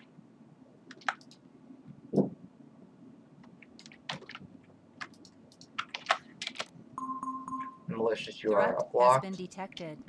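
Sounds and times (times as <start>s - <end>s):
faint low hum: 0.0s - 10.0s
computer mouse clicking: 0.9s - 1.4s, 3.6s - 4.4s, 5.0s - 6.7s.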